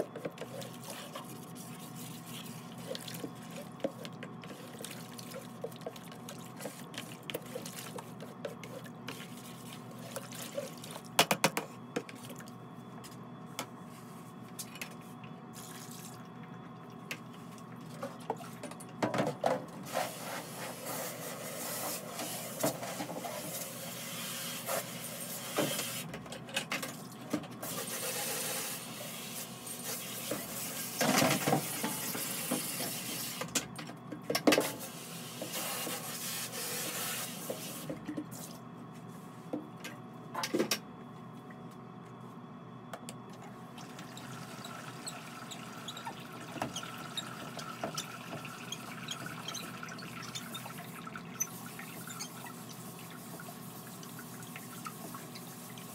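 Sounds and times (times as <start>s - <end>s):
liquid glaze sloshing in bucket: 0.0s - 13.0s.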